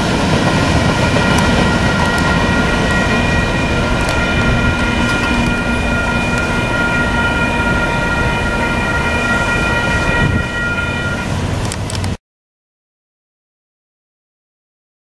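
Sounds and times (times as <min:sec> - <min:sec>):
crossing warning bell ringing: 0:00.0 - 0:12.0.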